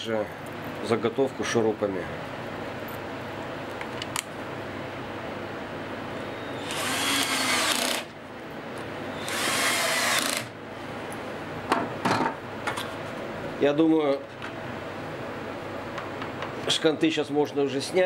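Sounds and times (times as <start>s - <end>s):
drill-driver driving screws: 6.6s - 8.1s, 9.2s - 10.5s.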